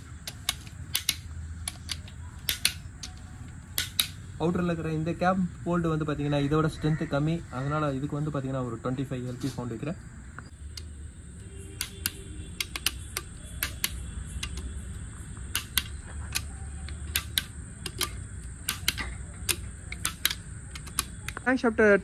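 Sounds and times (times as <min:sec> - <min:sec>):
torque wrench clicking: 0:00.0 - 0:04.2, 0:10.5 - 0:21.6.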